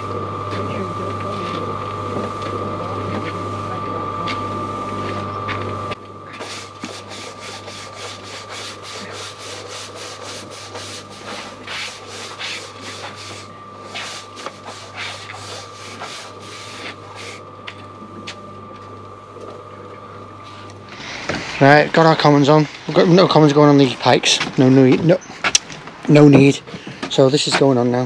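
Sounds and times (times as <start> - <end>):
machine hum: 0.0 - 28.0
tool scraping concrete: 6.3 - 17.4.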